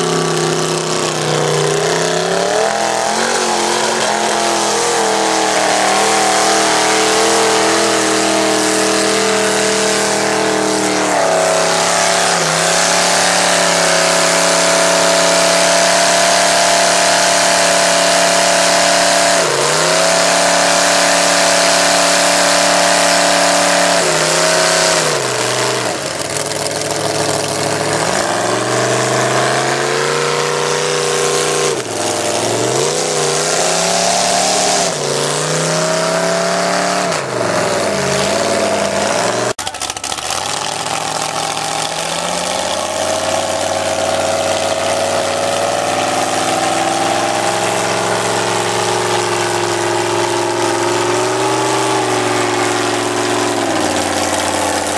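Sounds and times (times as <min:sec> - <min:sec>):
mud tires spinning in mud: 0:00.0 - 0:54.9
pickup engine revving hard: 0:00.0 - 0:54.9.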